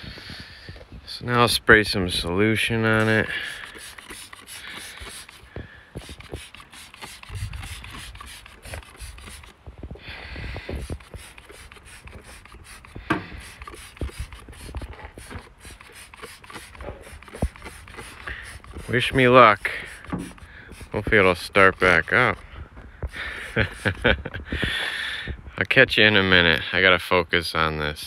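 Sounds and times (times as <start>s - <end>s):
spray bottle hissing: 3.0s - 9.6s, 10.6s - 22.4s, 23.1s - 24.1s
spray trigger clicking: 3.0s - 9.6s, 10.8s - 21.0s.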